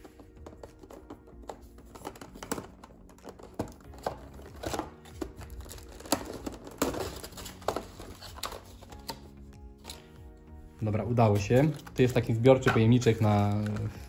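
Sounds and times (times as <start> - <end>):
plastic knocking on cardboard: 0.0 - 8.0
plastic crinkling and rustling: 0.0 - 9.3.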